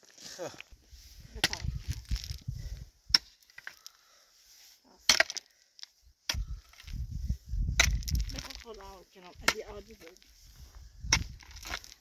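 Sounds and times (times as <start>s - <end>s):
pickaxe striking stony soil: 1.3s - 2.4s, 3.1s - 3.8s, 5.0s - 5.5s, 7.7s - 10.2s, 11.0s - 12.0s.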